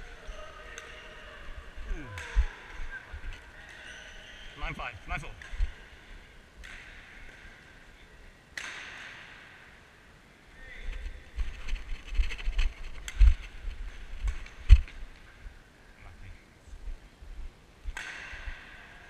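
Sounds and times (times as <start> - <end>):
racket hitting shuttlecock with echo: 2.0 - 3.0, 6.6 - 7.6, 8.5 - 9.8, 17.9 - 19.0.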